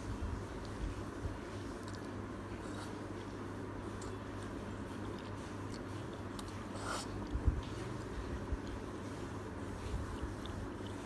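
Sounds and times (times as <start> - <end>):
steady low hum: 0.0 - 11.0
wet mouth clicks chewing: 1.7 - 3.0, 3.9 - 8.8, 9.9 - 11.0.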